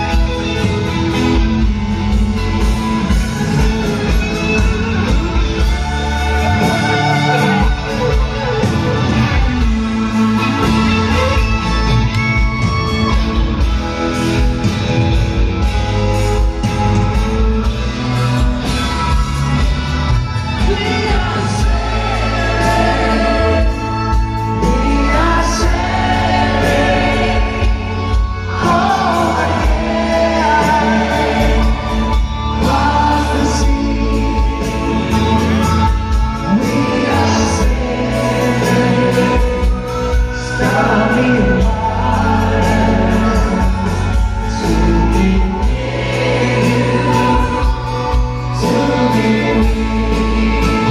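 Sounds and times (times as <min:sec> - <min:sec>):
band playing slow ballad: 0:00.0 - 0:50.9
man singing lead vocal: 0:20.4 - 0:50.9
women singing backing chorus: 0:20.7 - 0:35.1, 0:44.6 - 0:50.9.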